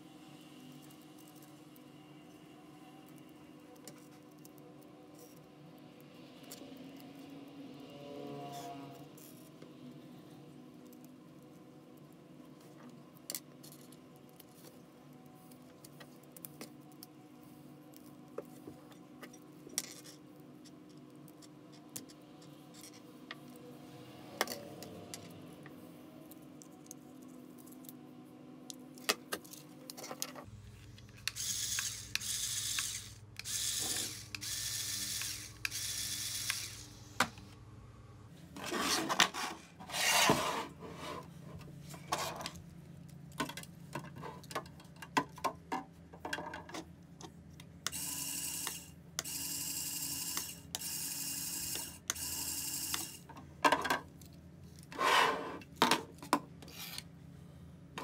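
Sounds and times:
small motors and gears whirring: 0.0 - 37.6, 47.8 - 53.4
low steady hum: 0.0 - 38.6.

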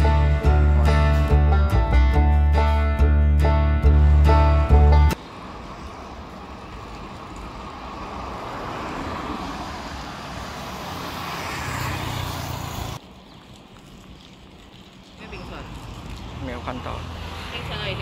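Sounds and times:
cars driving past: 3.5 - 13.0, 15.3 - 18.0.

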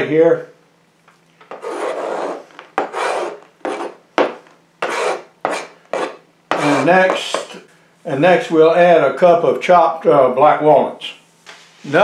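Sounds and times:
knife scraping cutting board: 1.5 - 7.6.

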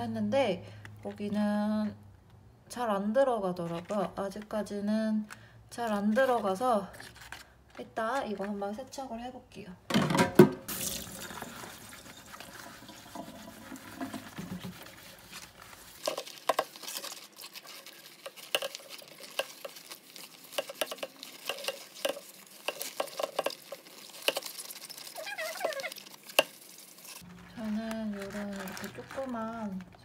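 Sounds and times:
scrub pad scraping blender jar: 11.4 - 27.3.

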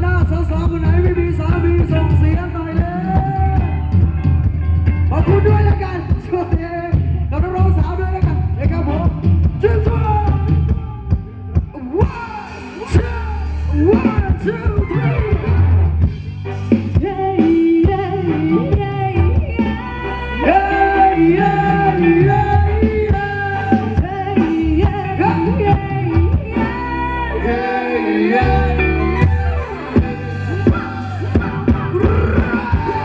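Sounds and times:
person singing: 0.0 - 4.1, 16.7 - 33.0
live dance band playing: 0.0 - 33.0.

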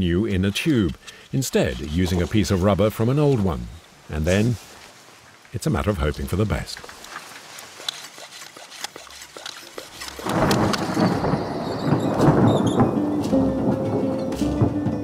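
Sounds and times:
raindrops ticking: 0.0 - 4.6, 5.4 - 15.0
thunder rumbling: 10.2 - 15.0.

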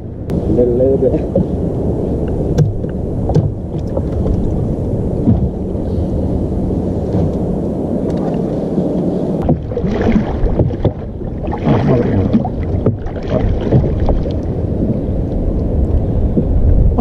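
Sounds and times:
low water noise: 0.0 - 17.0
wind on microphone: 0.0 - 17.0
wooden oar rowing: 1.2 - 1.6, 2.5 - 6.2, 7.0 - 7.4, 8.0 - 15.2.

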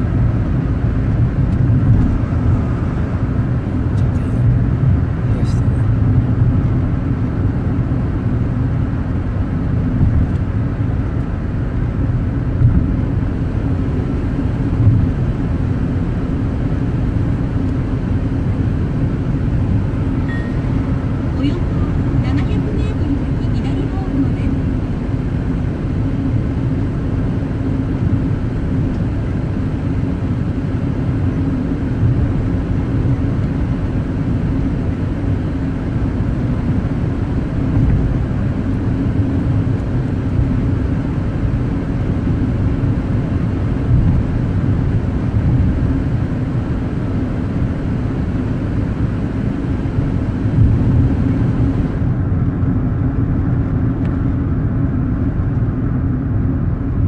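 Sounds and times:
tyre and road rumble: 0.0 - 26.6
car engine drone: 0.0 - 57.0.

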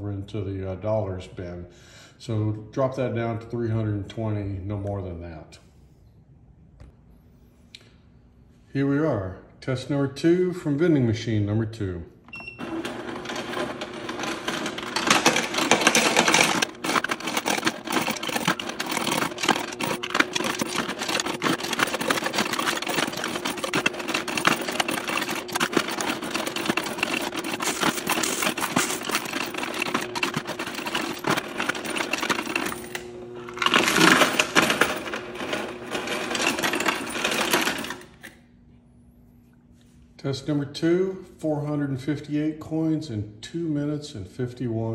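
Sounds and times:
motor hum: 12.3 - 38.4
coins clattering: 12.6 - 38.2.

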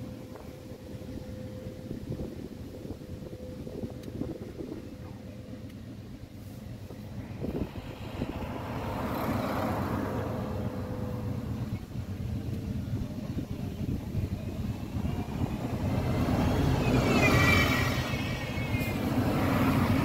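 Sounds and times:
traffic rumble: 0.0 - 20.0
car passing: 6.8 - 20.0.

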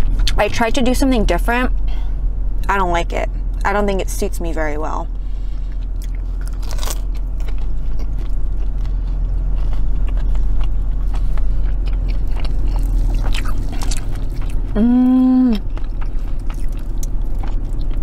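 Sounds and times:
low car cabin rumble: 0.0 - 18.0
chewing and biting: 5.5 - 14.8, 15.5 - 18.0
person humming mmm: 14.7 - 15.7.

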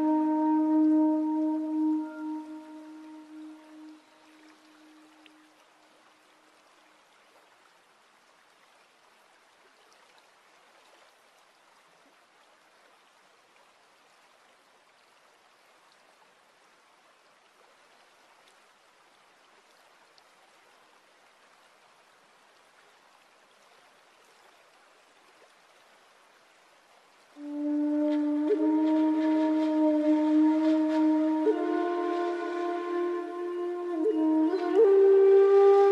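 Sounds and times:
flute music: 0.0 - 5.5, 27.4 - 35.9
water trickling over stones: 0.0 - 35.9.

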